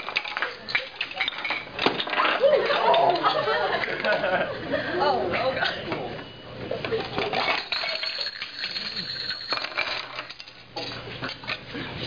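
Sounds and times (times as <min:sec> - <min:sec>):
chain-reaction pieces clattering: 0:00.0 - 0:02.4, 0:07.2 - 0:10.6.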